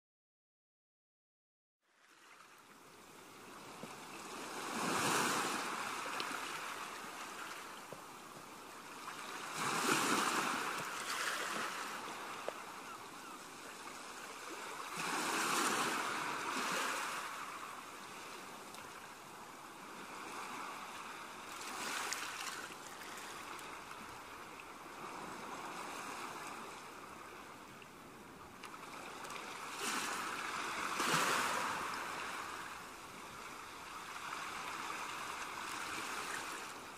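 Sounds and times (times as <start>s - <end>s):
waves rushing: 3.6s - 8.1s, 8.7s - 19.2s, 19.8s - 24.3s, 28.7s - 36.9s.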